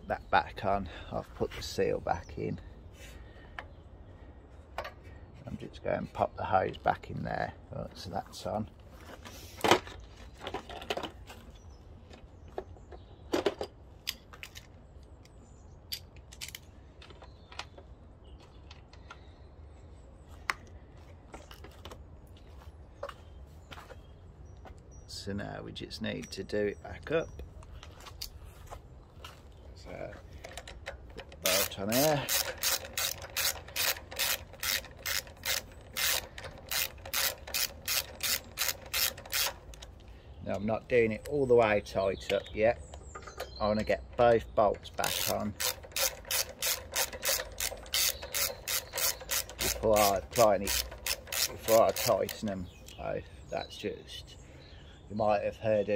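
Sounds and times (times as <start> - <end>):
metal and plastic parts clinking: 30.3 - 40.1, 42.9 - 53.0
socket ratchet clicking: 30.5 - 40.0, 45.0 - 53.0.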